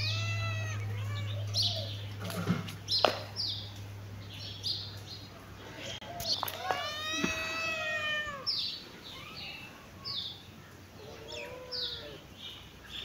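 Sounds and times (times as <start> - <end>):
kitten mewing: 0.0 - 1.9, 6.4 - 8.5
low steady hum: 0.0 - 8.2.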